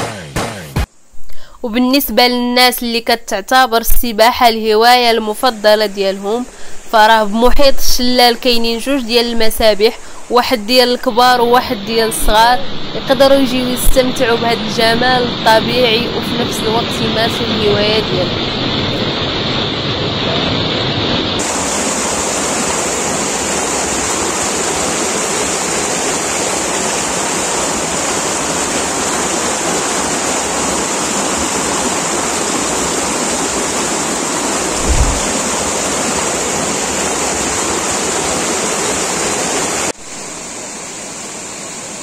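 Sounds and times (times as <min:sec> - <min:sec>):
waterfall rushing over rocks: 0:21.4 - 0:42.0
low thump: 0:34.8 - 0:35.4.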